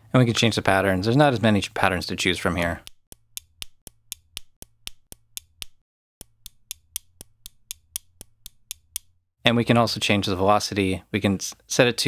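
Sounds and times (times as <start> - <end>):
sampled pen clicks pattern: 2.6 - 9.2.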